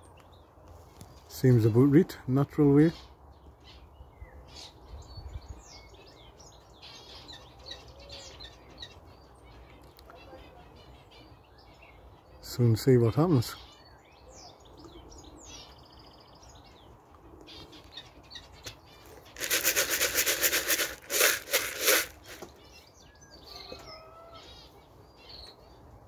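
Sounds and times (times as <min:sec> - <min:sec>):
faint bird chirping: 0:00.0 - 0:26.0
pigeon wings flapping: 0:19.4 - 0:22.5.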